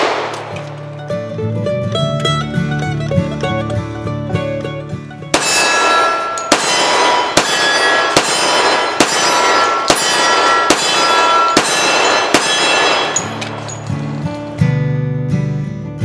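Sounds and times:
pistol shots: 0.0 - 1.0, 5.4 - 14.2.

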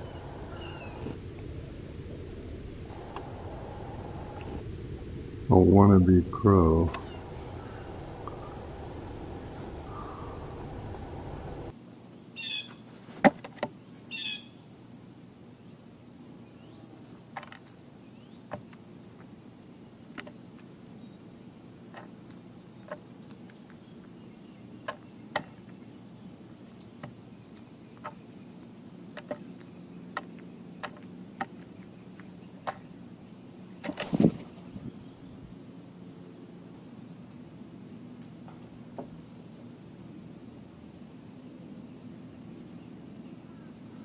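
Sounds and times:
low rumbling background noise: 0.0 - 13.1, 13.7 - 44.0
beak tapping on wooden boards: 17.3 - 17.8, 18.4 - 19.3, 20.1 - 20.7, 21.8 - 24.2, 24.8 - 25.8, 26.6 - 33.0
bird wings flapping: 33.8 - 34.9.

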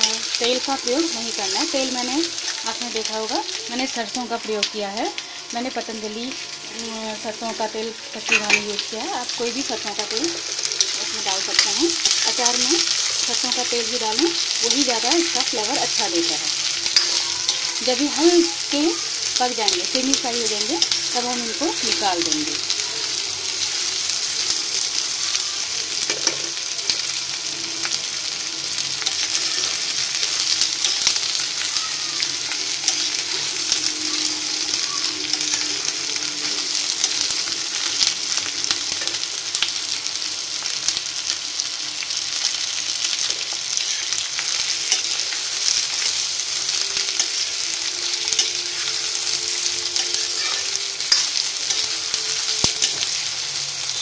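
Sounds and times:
vegetables sizzling in hot oil: 0.0 - 54.0
metal spatula scraping pan: 8.1 - 8.8.

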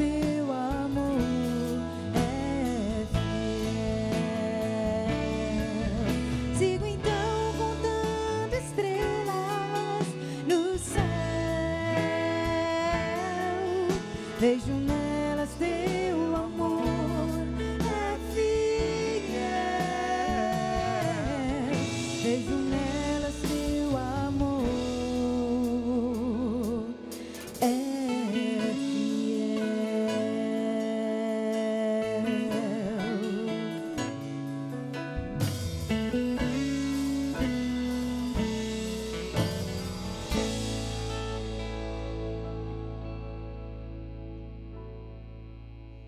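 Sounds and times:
woman singing with vibrato: 0.0 - 34.1, 36.4 - 39.1
band playing: 0.0 - 45.6.

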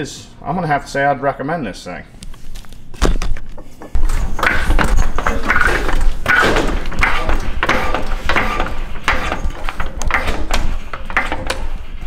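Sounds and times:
floor jack metal clanks and creaks: 3.4 - 12.0.

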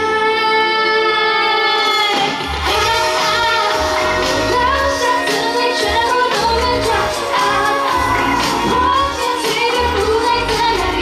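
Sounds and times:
pop backing track: 0.0 - 11.0
woman singing into microphone: 0.0 - 11.0
steady bass beat: 5.9 - 11.0.

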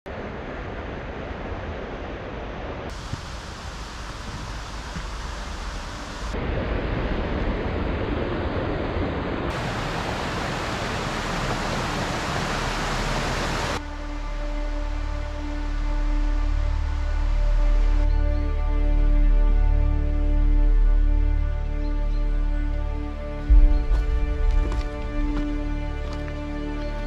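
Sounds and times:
stream water running over rocks: 2.9 - 6.4, 9.5 - 13.8, 23.5 - 27.0.

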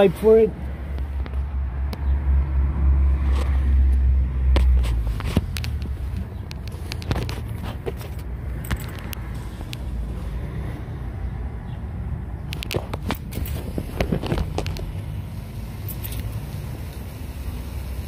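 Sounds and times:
car engine idling rumble: 11.1 - 18.0.

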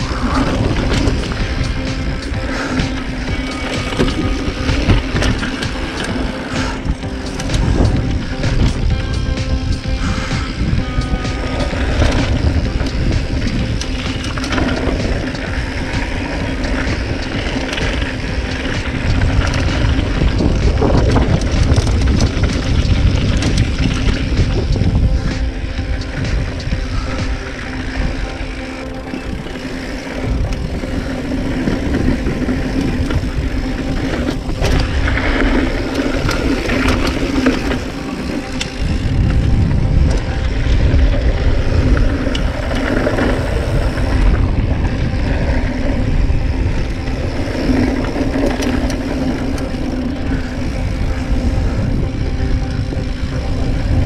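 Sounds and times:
bike tyres rumbling over dirt: 0.0 - 54.0
wind rushing over microphone: 0.0 - 54.0.

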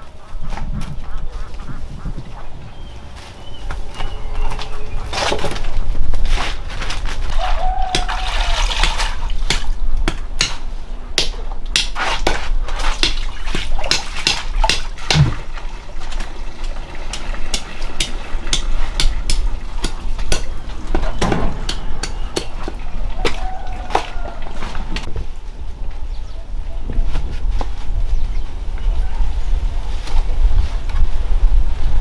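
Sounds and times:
water splashing: 8.0 - 9.4, 12.8 - 24.6.

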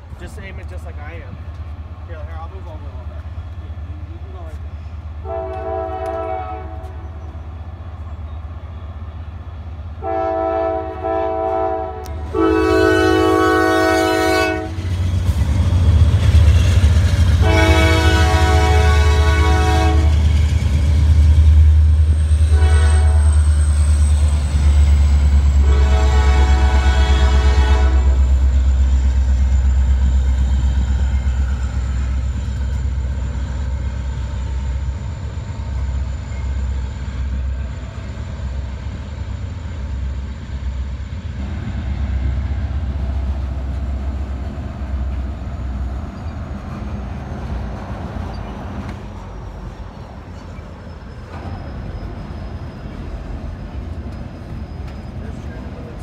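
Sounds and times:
train cars rolling: 0.0 - 56.0
train air horn blasts: 5.2 - 7.2, 10.0 - 14.9, 17.4 - 20.2, 22.5 - 23.4, 25.5 - 28.3.

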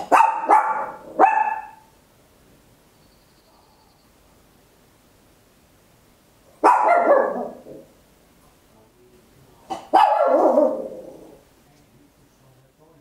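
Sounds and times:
dog barking sharply: 0.0 - 1.9, 6.6 - 7.7, 9.7 - 10.9.

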